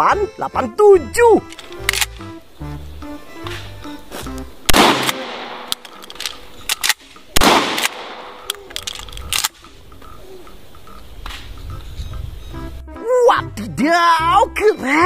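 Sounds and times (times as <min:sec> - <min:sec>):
sharp clicks: 0:01.4 - 0:02.4, 0:04.3 - 0:10.2
shotgun shots with echo: 0:04.7 - 0:05.9, 0:06.8 - 0:08.5.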